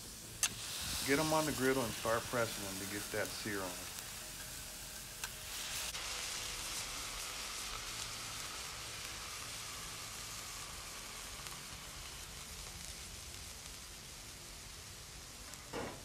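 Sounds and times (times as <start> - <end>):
patties sizzling on a griddle: 0.0 - 16.0.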